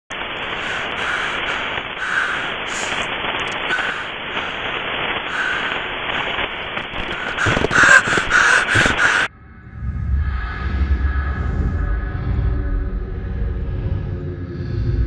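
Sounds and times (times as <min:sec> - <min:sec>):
harsh static hiss: 0:00.1 - 0:09.3
rasping croak-like bursts: 0:00.6 - 0:09.3.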